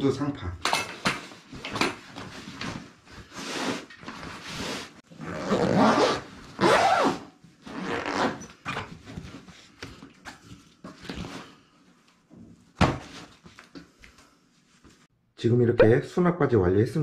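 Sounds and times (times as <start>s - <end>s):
zipper being pulled closed: 5.2s - 8.5s.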